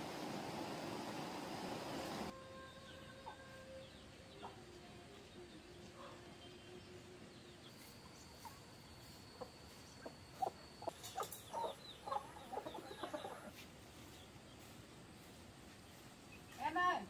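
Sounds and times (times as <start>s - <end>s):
chickens clucking: 7.7s - 14.6s.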